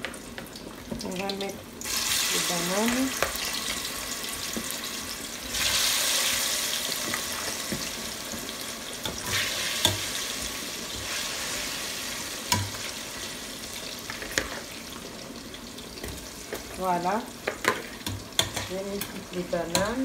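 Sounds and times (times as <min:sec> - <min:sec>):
food sizzling in hot oil: 0:00.0 - 0:20.0
metal utensils clinking on pot: 0:17.5 - 0:20.0.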